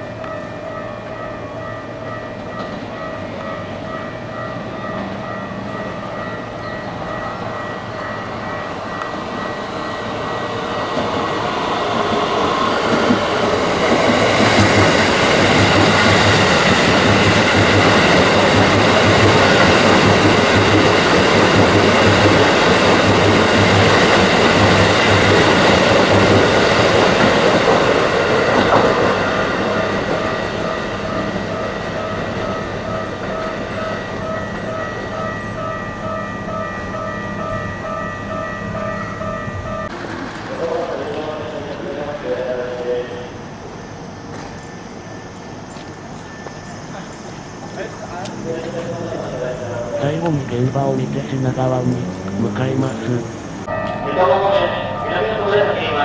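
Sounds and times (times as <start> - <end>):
electric train passing: 0.0 - 56.0
wheels clacking over rail joints: 11.9 - 38.0.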